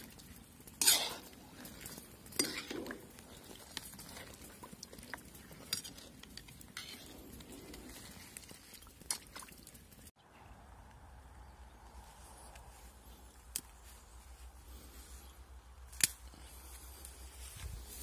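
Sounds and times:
utensil stirring in pot of water: 0.0s - 9.4s.

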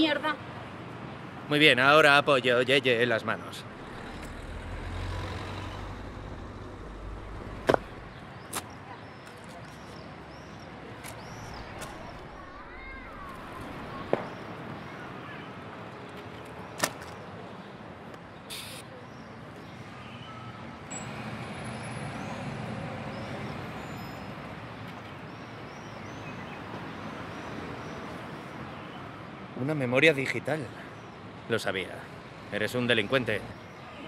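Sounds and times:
traffic hum: 0.0s - 20.0s, 20.6s - 34.0s
car passing: 3.3s - 8.5s, 11.3s - 15.2s.

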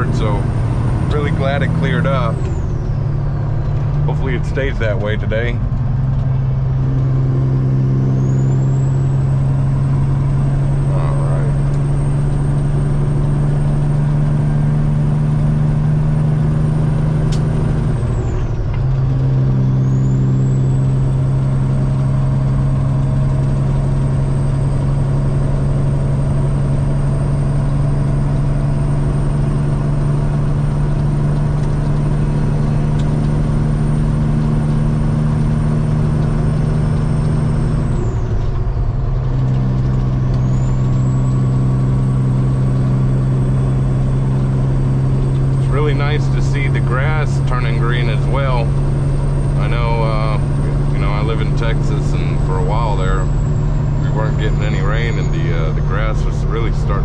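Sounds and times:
truck diesel engine running: 0.0s - 57.0s
high whine: 28.6s - 57.0s.

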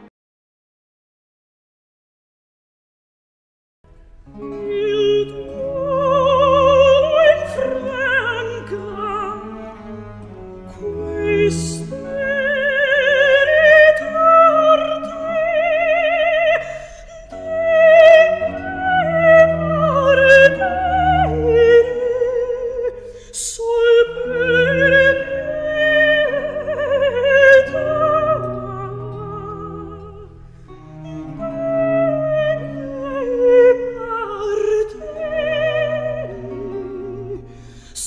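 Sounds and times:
operatic singing: 4.4s - 30.3s, 30.9s - 38.0s.

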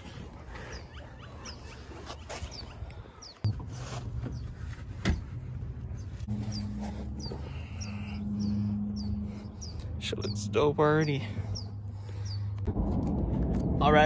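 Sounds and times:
birds chirping: 0.0s - 12.7s
low hum: 2.7s - 14.0s
droning tone: 5.5s - 14.0s.

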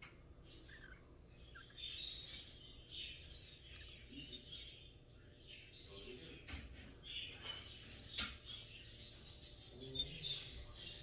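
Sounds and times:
parrot chicks squeaking and chirping: 0.0s - 11.0s.

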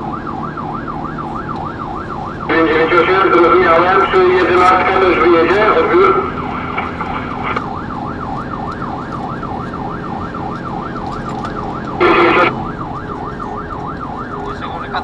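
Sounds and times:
fire engine siren wailing: 0.0s - 15.0s.

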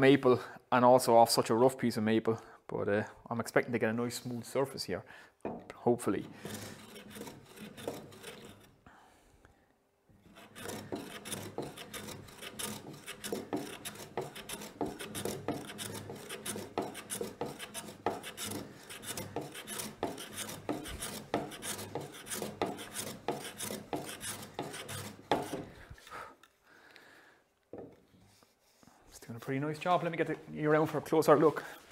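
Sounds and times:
hand plane shaving wood: 6.2s - 8.8s, 10.2s - 26.1s.

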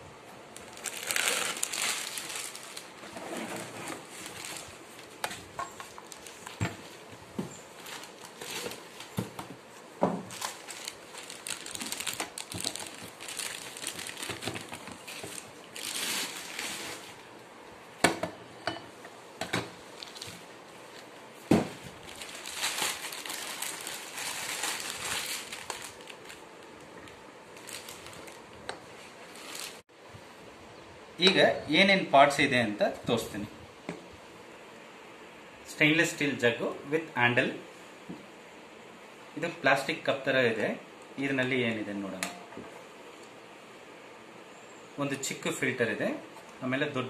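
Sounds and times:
plastic packaging crinkling: 0.5s - 9.3s, 10.2s - 17.3s, 19.9s - 21.1s, 21.7s - 29.8s.

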